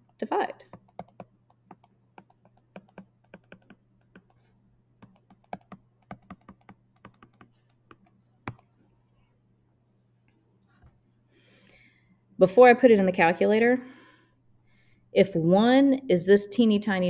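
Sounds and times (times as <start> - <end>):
stylus tapping on tablet screen: 0.0 - 8.7.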